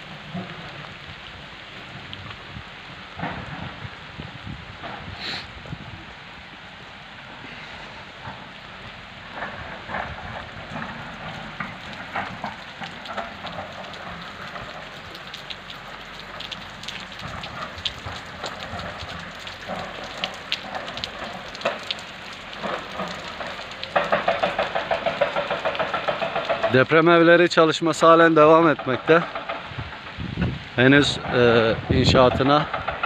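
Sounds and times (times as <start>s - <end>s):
raindrops ticking on camera: 0.0s - 33.0s
steady rain: 0.0s - 33.0s.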